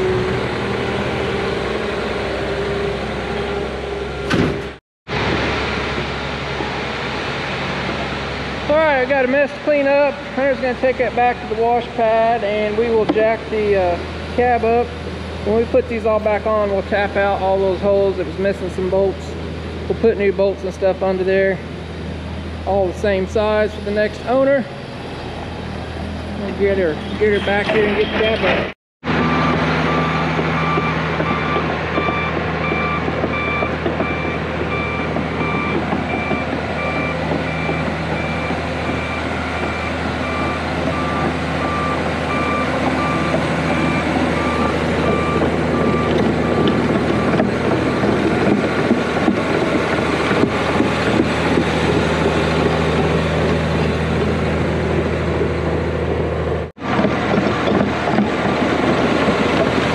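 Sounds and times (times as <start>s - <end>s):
diesel dozer engine running: 0.0s - 59.9s
backup alarm beeping: 29.2s - 47.5s.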